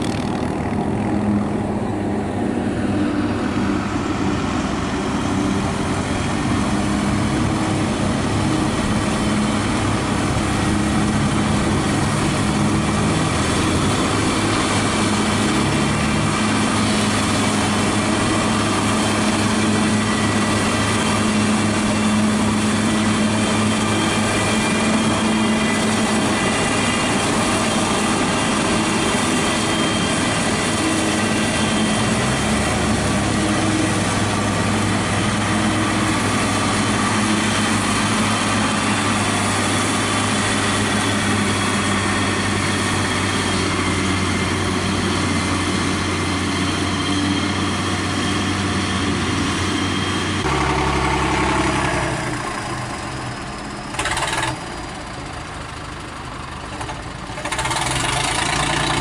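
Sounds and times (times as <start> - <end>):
forage harvester chopping: 0.0 - 1.4, 53.9 - 54.7, 56.8 - 59.0
tractor engine running: 0.0 - 59.0.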